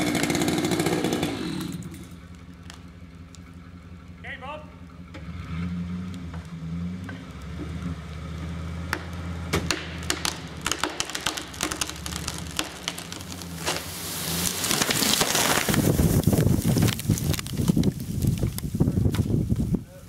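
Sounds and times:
truck engine running: 0.0 - 19.8
tree trunk cracking and snapping: 0.1 - 3.5, 6.0 - 19.6
tree crashing through branches: 7.4 - 19.7.

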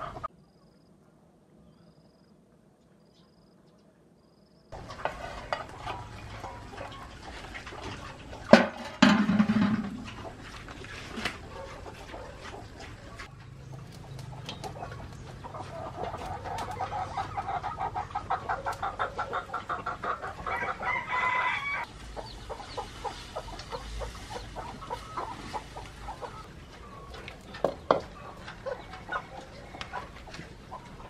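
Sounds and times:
chickens clucking: 0.0 - 0.3, 4.7 - 31.0
rooster crowing: 20.4 - 21.9.

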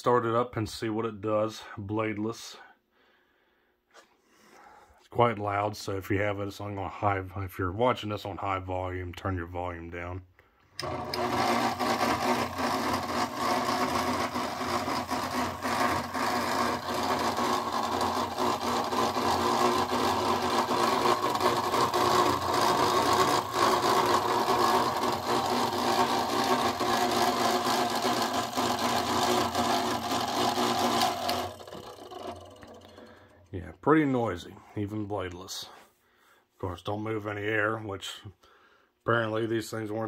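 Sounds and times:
fan motor humming: 10.8 - 33.6.

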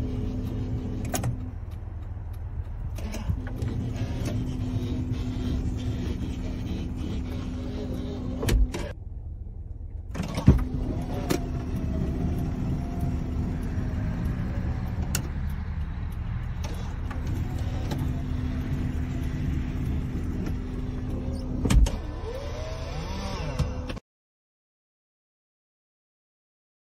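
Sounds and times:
sliding door motor running: 3.0 - 8.9, 10.2 - 15.1, 16.6 - 24.0
low rumble: 9.0 - 21.6.

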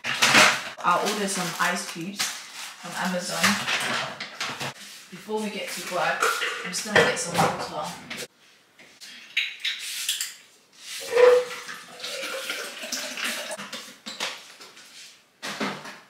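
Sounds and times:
water pouring into a glass: 11.5 - 13.6.

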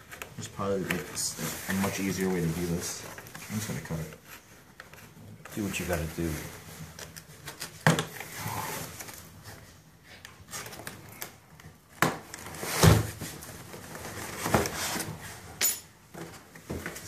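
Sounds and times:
cardboard scraping and rustling: 0.1 - 9.8, 12.2 - 15.5.

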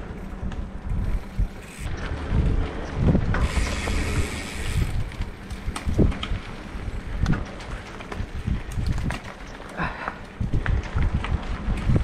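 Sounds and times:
bike tyre rumble on dirt: 0.0 - 12.0
wind on microphone: 0.3 - 12.0
hissing rush: 3.4 - 5.1.

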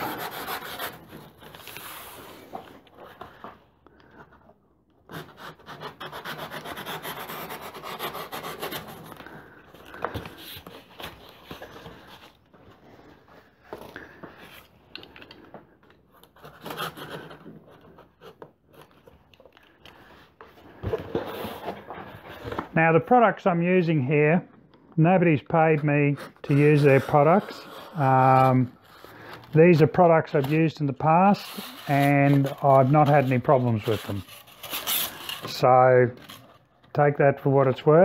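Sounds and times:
knife sawing through cardboard: 0.0 - 1.3, 5.1 - 9.2.

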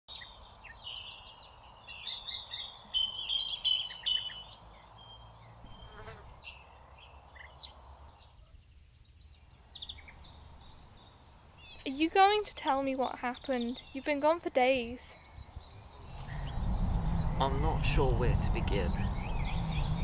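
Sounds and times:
birds chirping: 0.1 - 20.0
low background rumble: 14.6 - 20.0.

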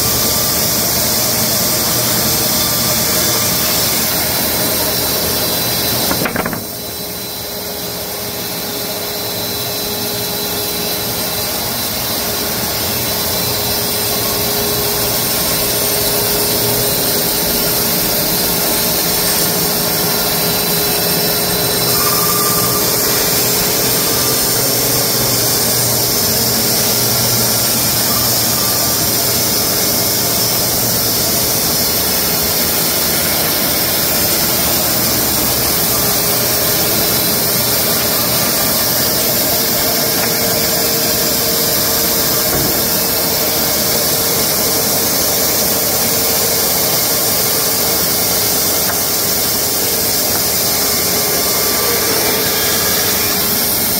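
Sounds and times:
electric bandsaw mill cutting wood: 11.8 - 53.9.

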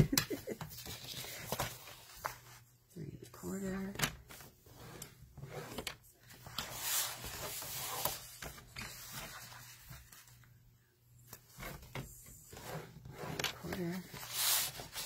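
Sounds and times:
paper sliding: 6.5 - 9.9, 14.2 - 15.0.

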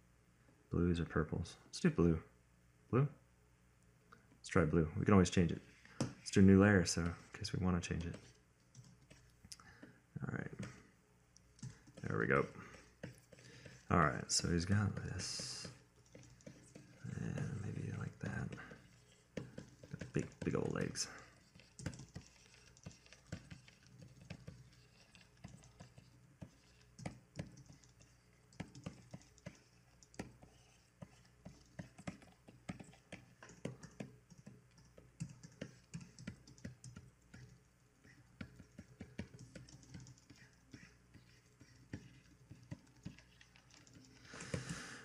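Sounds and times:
computer keyboard clicking: 8.0 - 9.2, 21.5 - 37.6, 38.4 - 44.8.

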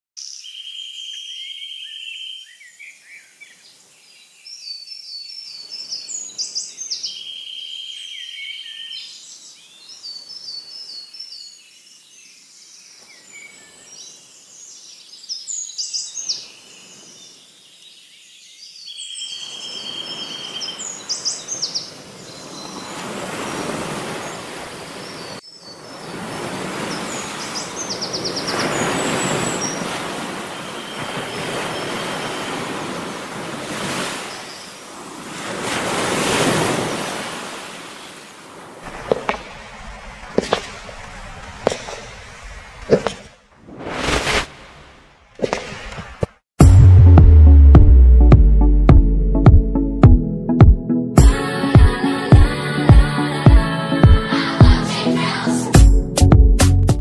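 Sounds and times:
birds chirping and trilling: 0.2 - 33.1
surf washing: 19.8 - 46.3.

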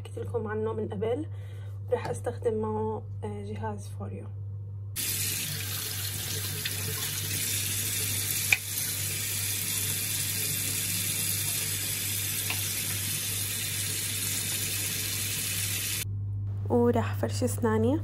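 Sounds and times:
brush rinsed under water: 5.0 - 16.0
tap running into sink: 8.2 - 8.9, 11.4 - 13.5.

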